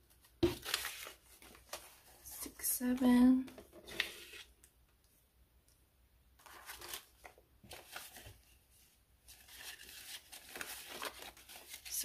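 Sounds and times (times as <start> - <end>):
paper banknotes rustling: 9.3 - 12.0.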